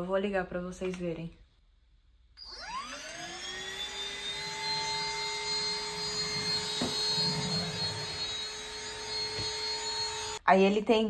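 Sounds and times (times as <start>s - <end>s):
stick vacuum cleaner running: 2.4s - 10.4s.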